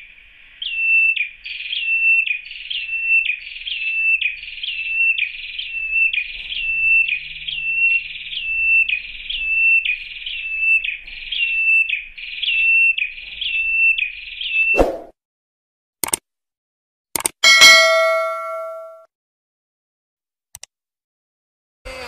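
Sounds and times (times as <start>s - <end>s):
bird repeating high whistled call: 0.0s - 15.1s.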